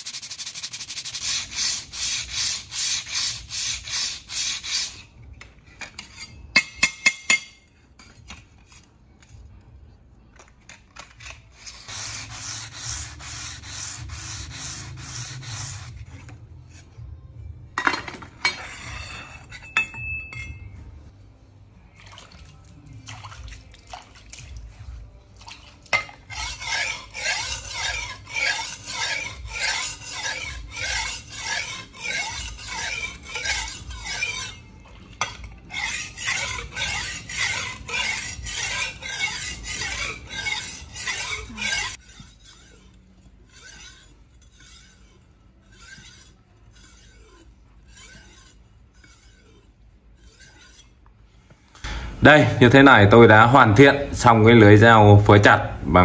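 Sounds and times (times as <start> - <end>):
knife stroked on sharpening stone: 0.0 - 5.2, 5.8 - 9.4, 11.0 - 16.9, 17.9 - 20.6, 26.0 - 51.5.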